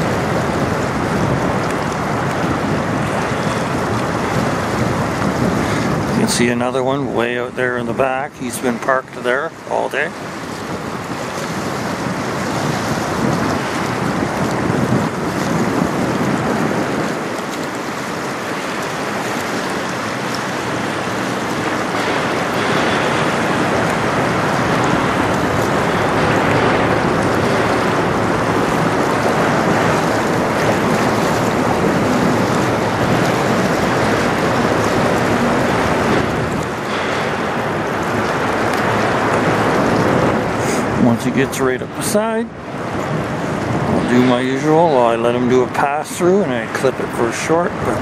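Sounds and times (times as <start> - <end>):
river water rushing: 0.0 - 48.0
wind on microphone: 0.0 - 48.0.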